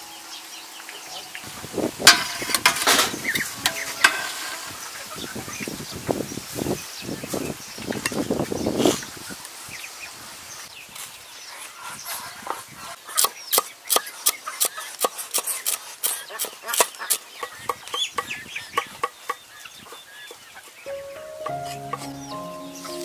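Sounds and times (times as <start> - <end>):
chirping calls: 0.0 - 13.7, 16.2 - 23.0
poultry calling: 17.6 - 23.0.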